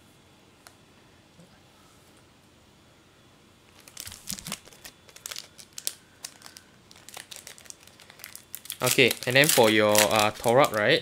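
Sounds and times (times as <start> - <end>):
plastic packaging crinkling: 3.7 - 11.0.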